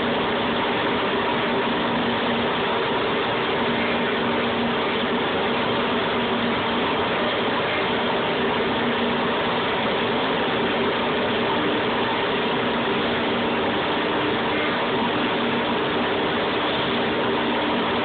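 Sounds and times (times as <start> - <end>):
cnc router running: 0.0 - 18.0
faint steady hum tones: 0.0 - 18.0.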